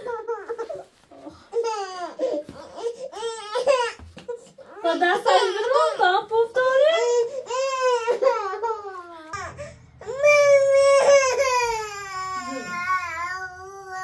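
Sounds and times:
baby crying: 7.0 - 14.0.

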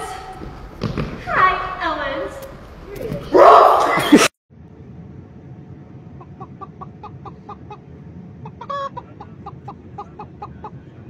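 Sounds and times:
airliner cabin drone: 4.5 - 11.0.

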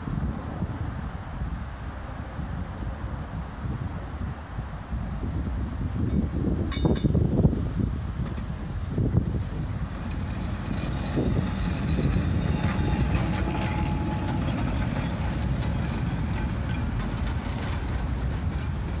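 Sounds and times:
tram rumbling past: 5.0 - 19.0
wheels clicking over rails: 8.2 - 19.0
steady whine: 9.1 - 19.0.

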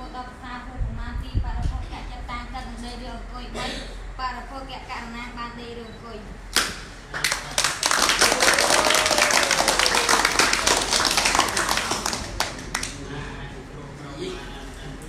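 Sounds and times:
single sharp clap: 6.5 - 7.4
people applauding: 6.6 - 13.1.

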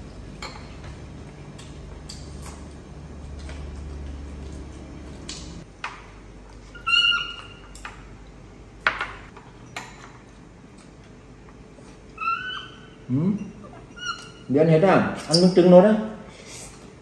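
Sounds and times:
baby monkey squeaking: 6.8 - 7.6, 12.2 - 12.9, 13.7 - 14.5.

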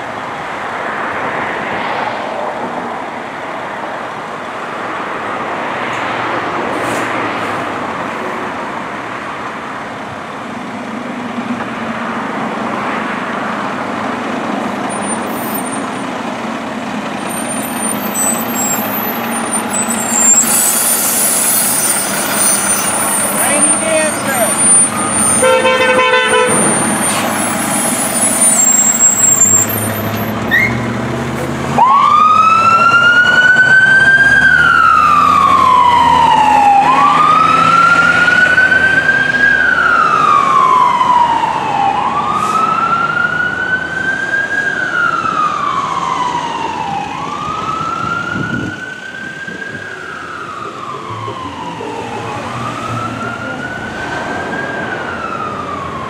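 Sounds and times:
truck engine rumble: 3.1 - 56.0
fire engine siren wailing: 11.3 - 56.0.

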